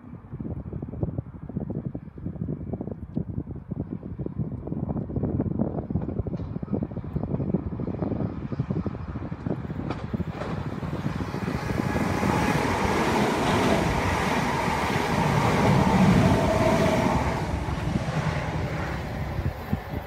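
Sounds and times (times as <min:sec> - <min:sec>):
train passing at speed: 0:08.3 - 0:20.0.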